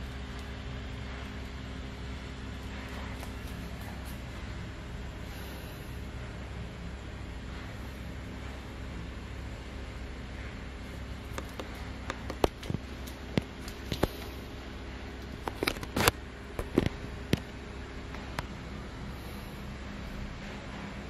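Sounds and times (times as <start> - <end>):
room hiss: 0.0 - 15.4
low hum: 0.0 - 21.0.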